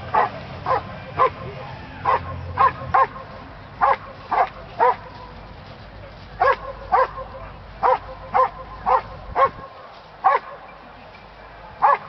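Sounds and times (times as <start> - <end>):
dog barking loudly: 0.1 - 5.1, 6.4 - 10.6, 11.8 - 12.0.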